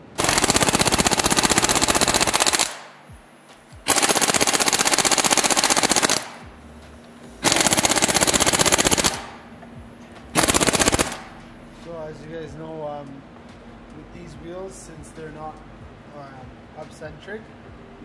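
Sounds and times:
impact wrench hammering: 7.4 - 11.4.

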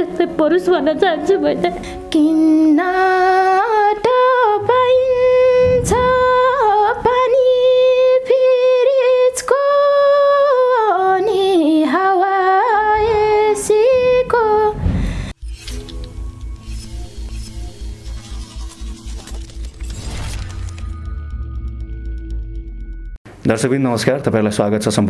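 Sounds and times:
woman singing unaccompanied: 0.0 - 14.8
low rumble: 4.0 - 7.9.

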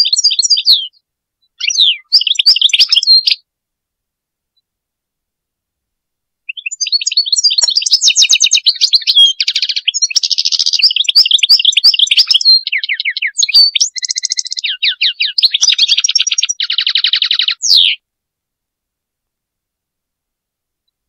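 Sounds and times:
goldfinch twittering song: 0.0 - 3.4, 6.5 - 18.0.

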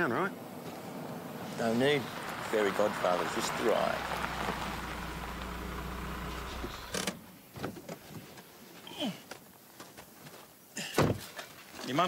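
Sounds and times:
car engine idling: 0.0 - 7.1
vehicle clunk: 2.1 - 7.8.

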